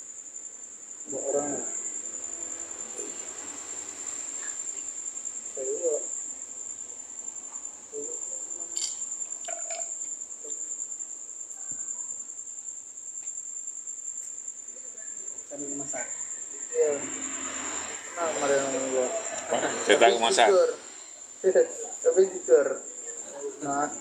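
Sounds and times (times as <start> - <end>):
insects trilling: 0.0 - 24.0
faint indistinct voices: 1.1 - 4.8, 14.7 - 24.0.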